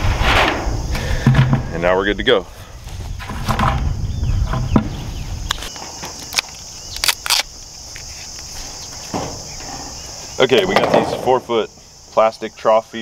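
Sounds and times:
wind rumble on microphone: 0.0s - 5.7s
insects singing: 0.0s - 13.0s.

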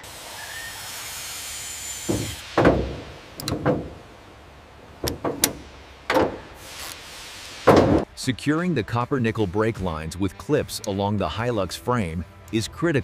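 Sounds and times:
hiss: 0.0s - 4.1s, 5.1s - 8.1s
metal knocks and clunks: 2.0s - 6.7s, 7.6s - 8.1s.

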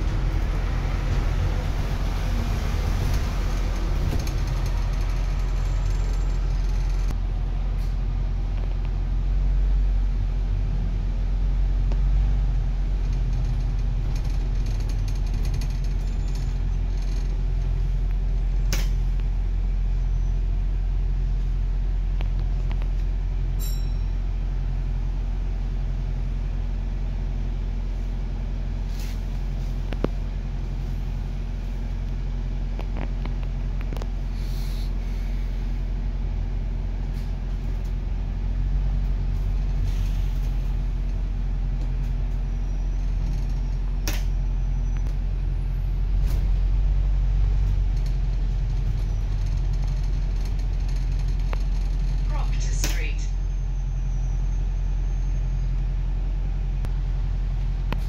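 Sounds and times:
bus engine rumble: 0.0s - 58.0s
clicks and rattles: 13.0s - 17.7s.

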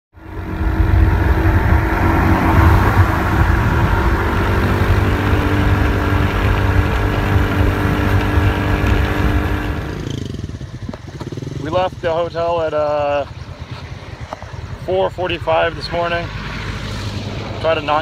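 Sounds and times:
wind noise on microphone: 0.2s - 11.2s
motorbike engine running: 0.2s - 15.7s.

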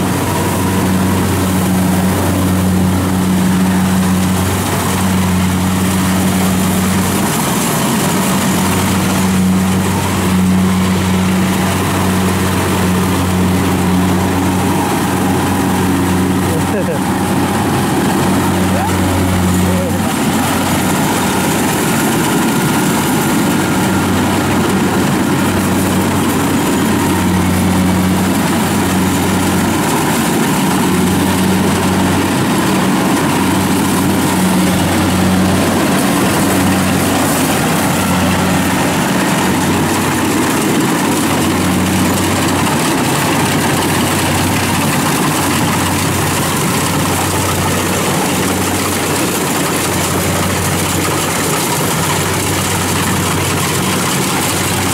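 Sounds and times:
diesel engine drone: 0.0s - 54.9s
harvesting machinery rush: 0.0s - 54.9s.

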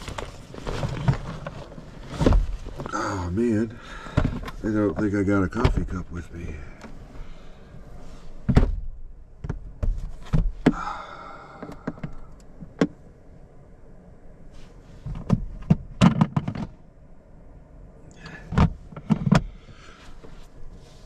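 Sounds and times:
rustling scrape: 0.0s - 2.9s, 7.9s - 8.5s, 14.5s - 15.2s, 19.9s - 21.0s
bag rustling: 0.0s - 3.0s.

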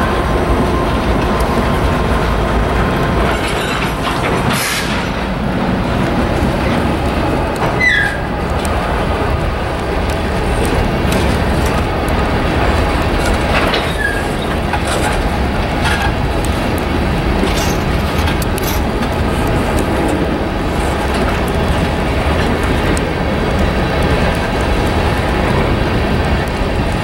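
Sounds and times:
freight train wheels rumbling: 0.0s - 27.0s
wheels clicking over rail joints: 0.0s - 27.0s
high wheel squeaks: 7.6s - 8.3s, 13.6s - 15.2s.

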